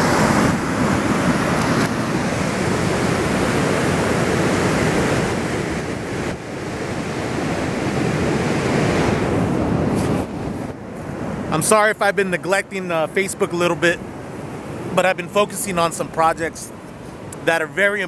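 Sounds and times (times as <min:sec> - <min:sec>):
wind on microphone: 0:00.0 - 0:11.6
ocean surf breaking: 0:00.0 - 0:18.0.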